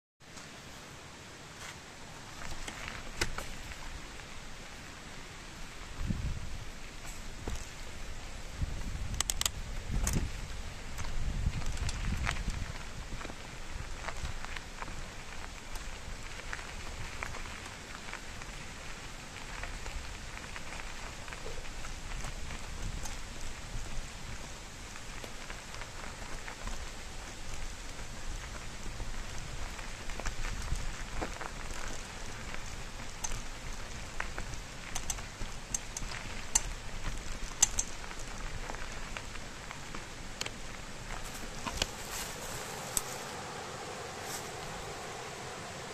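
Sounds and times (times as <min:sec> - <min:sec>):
bike tyres crunching on gravel: 0:00.2 - 0:45.9
bike rattling: 0:01.7 - 0:45.9
stones clicking: 0:34.9 - 0:38.5.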